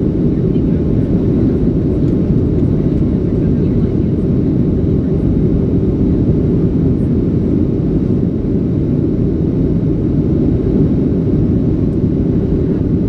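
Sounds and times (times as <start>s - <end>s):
airplane cabin engine rumble: 0.0s - 13.0s.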